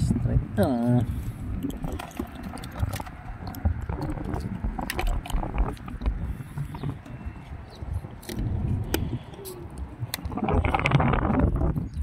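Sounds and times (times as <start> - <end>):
fish handling clicks and taps: 1.5 - 11.0.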